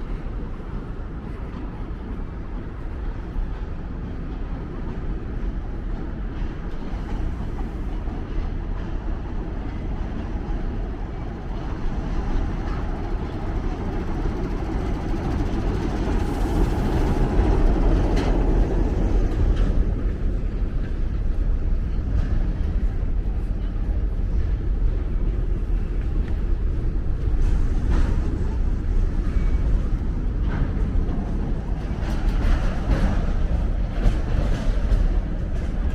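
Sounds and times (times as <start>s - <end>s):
train rumbling past: 0.0s - 35.9s.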